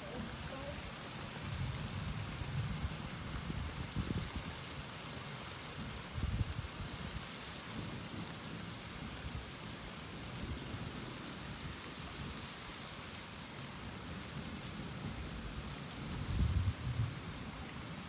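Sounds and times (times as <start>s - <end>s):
steady rain falling: 0.0s - 18.0s
thunder rumbling: 14.2s - 17.9s.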